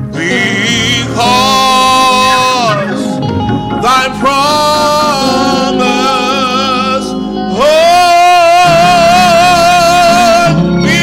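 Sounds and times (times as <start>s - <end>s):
keyboard accompaniment: 0.0s - 11.0s
man singing with vibrato: 0.0s - 11.0s.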